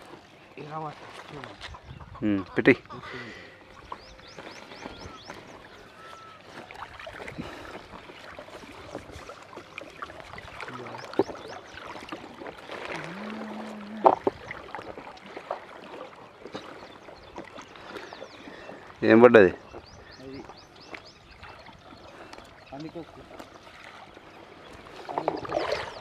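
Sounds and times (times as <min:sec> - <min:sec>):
water lapping against boat: 0:00.0 - 0:26.0.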